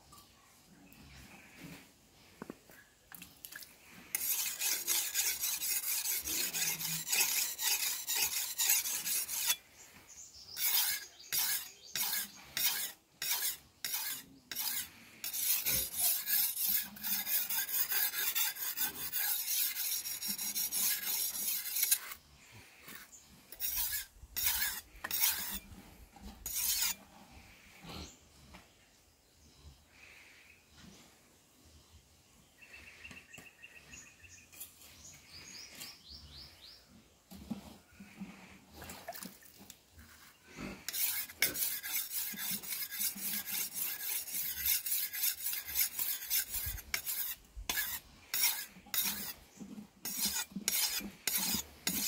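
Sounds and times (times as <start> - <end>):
blade scraping on whetstone: 4.1 - 9.6, 10.5 - 27.0, 40.0 - 52.0.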